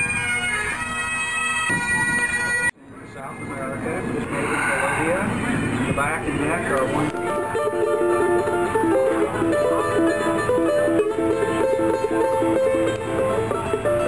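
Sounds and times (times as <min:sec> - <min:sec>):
charango plucked melody: 0:07.1 - 0:14.0.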